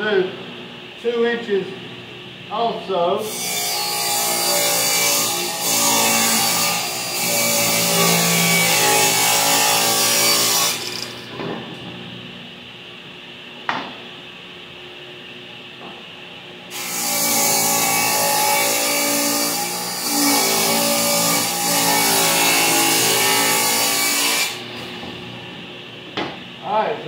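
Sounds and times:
steady machine hum: 0:00.0 - 0:16.8, 0:22.6 - 0:27.0
table saw cutting wood: 0:03.3 - 0:11.3, 0:16.7 - 0:25.0.

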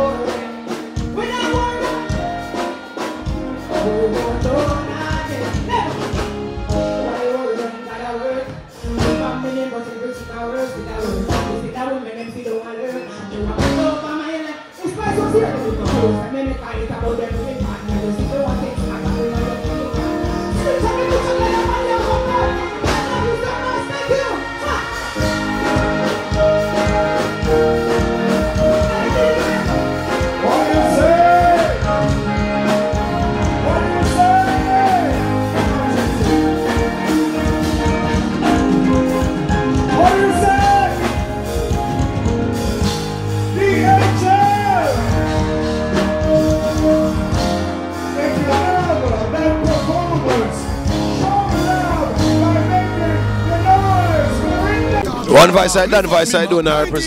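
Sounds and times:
backing track with beat: 0:00.0 - 0:57.0
live band playing: 0:00.0 - 0:57.0
man singing into microphone: 0:03.7 - 0:06.2, 0:06.8 - 0:26.5, 0:28.2 - 0:32.5, 0:33.4 - 0:36.8, 0:39.9 - 0:41.2, 0:53.3 - 0:57.0
drum beat: 0:55.0 - 0:57.0.

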